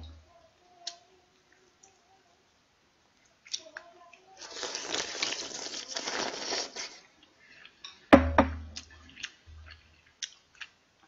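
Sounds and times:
slurping noodle soup: 0:04.4 - 0:07.8.

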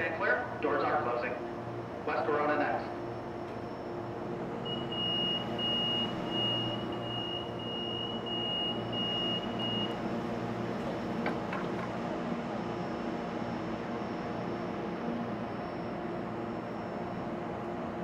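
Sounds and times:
idling train hum: 0:00.0 - 0:18.0
train door warning beep: 0:04.6 - 0:10.0.

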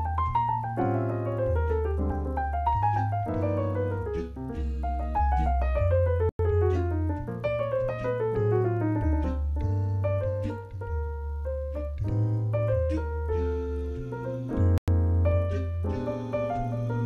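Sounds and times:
bossa nova piano: 0:00.0 - 0:17.0
deep held bass line: 0:00.0 - 0:17.0.

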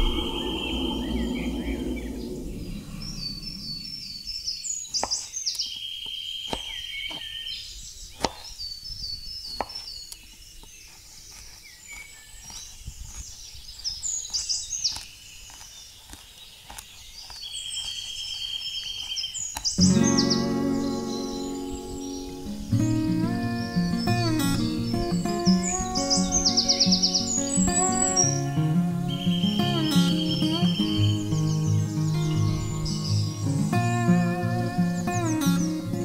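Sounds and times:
high bird trill: 0:00.0 - 0:04.4, 0:19.8 - 0:36.0
low sound: 0:00.0 - 0:04.4, 0:19.8 - 0:36.0
birds chirping: 0:00.0 - 0:36.0.

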